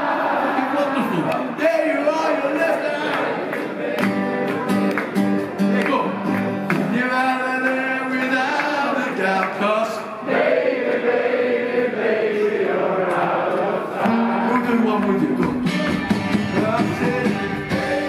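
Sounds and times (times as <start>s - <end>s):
voices singing held notes: 6.7s - 18.0s
live band playing: 14.0s - 18.0s.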